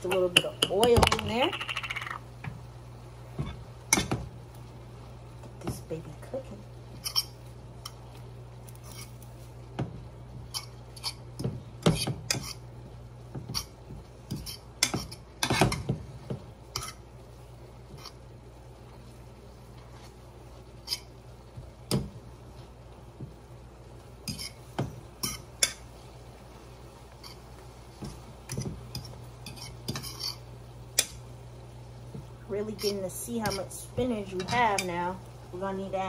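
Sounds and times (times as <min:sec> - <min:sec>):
steady low hum: 0:00.0 - 0:36.0
utensils scraping frying pan: 0:06.9 - 0:08.0, 0:08.6 - 0:09.6, 0:10.3 - 0:12.8, 0:13.4 - 0:16.0, 0:16.6 - 0:17.2, 0:17.8 - 0:18.3, 0:19.7 - 0:21.2, 0:24.2 - 0:25.9, 0:27.1 - 0:31.2, 0:32.6 - 0:35.1.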